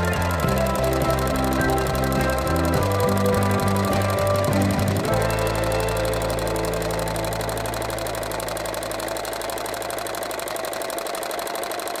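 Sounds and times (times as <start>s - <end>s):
sewing machine clattering: 0.0s - 12.0s.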